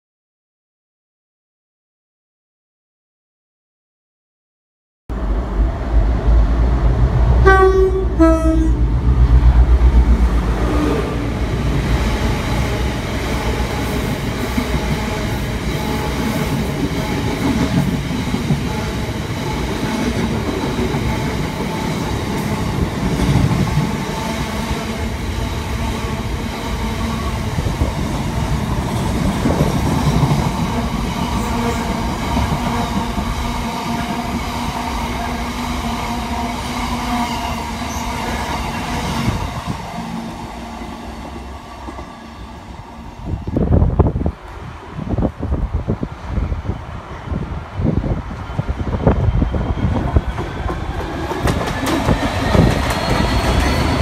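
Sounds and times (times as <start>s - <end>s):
two-tone train horn blasts: 7.4s - 9.0s
train wheels rattling on rails: 9.0s - 43.6s, 46.0s - 54.0s.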